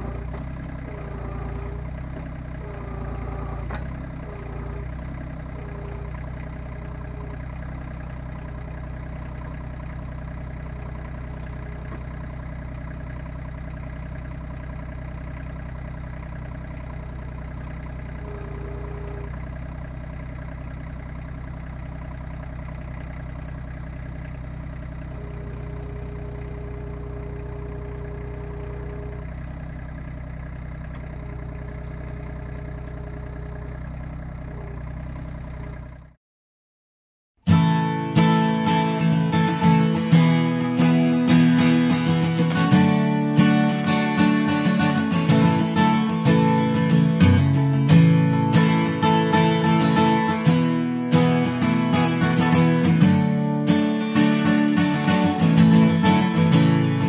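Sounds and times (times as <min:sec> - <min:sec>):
hydraulic whine: 0:00.0 - 0:08.0, 0:16.8 - 0:20.0
tractor diesel engine running: 0:00.0 - 0:36.2, 0:37.4 - 0:57.0.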